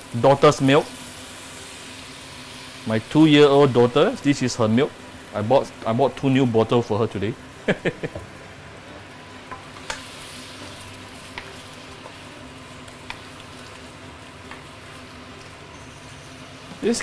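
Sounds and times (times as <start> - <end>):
food sizzling in a wok: 0.0 - 17.0.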